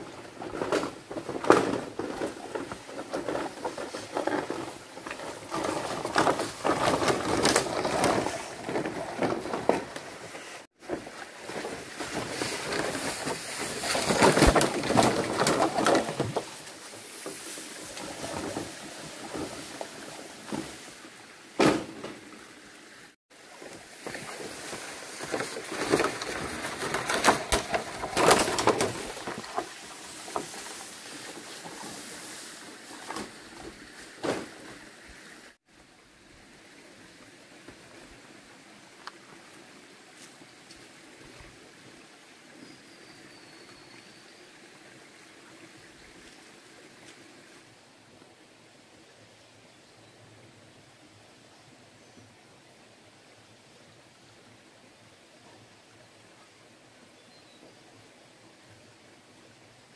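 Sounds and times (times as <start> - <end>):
bamboo poles dragged through leaves: 0.0 - 21.2, 23.4 - 35.6.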